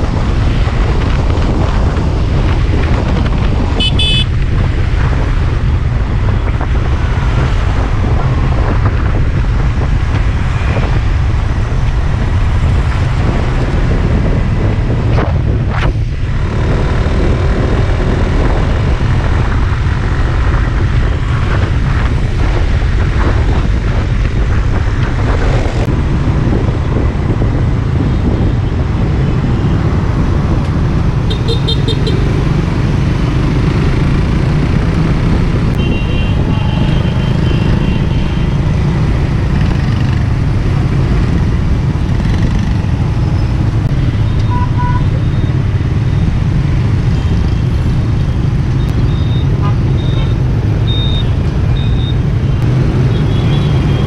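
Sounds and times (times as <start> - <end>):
traffic: 0.0 - 54.0
wind and road noise: 0.0 - 54.0
horn beeps: 3.8 - 4.3, 44.1 - 45.6, 48.8 - 54.0.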